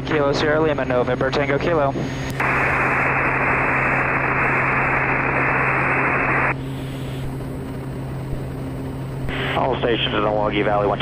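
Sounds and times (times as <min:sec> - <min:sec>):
turboprop engine drone: 0:00.0 - 0:11.0
radio static hiss: 0:02.0 - 0:07.5, 0:09.2 - 0:11.0.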